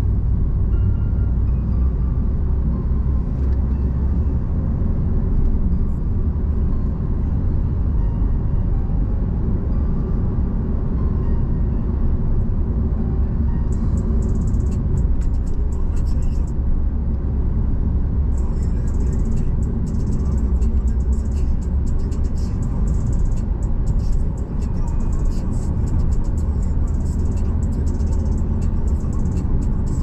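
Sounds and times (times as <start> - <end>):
car engine and tyre rumble: 0.0 - 30.0.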